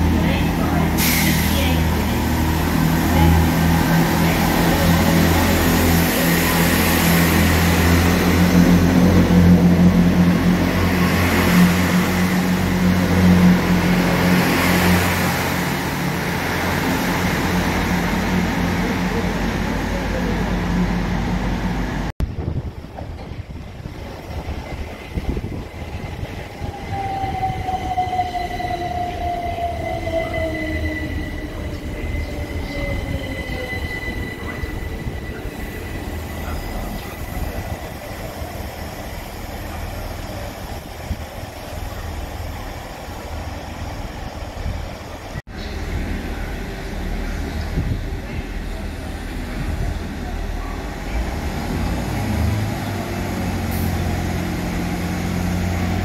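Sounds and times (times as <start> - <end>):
diesel train passing: 0.0 - 56.0.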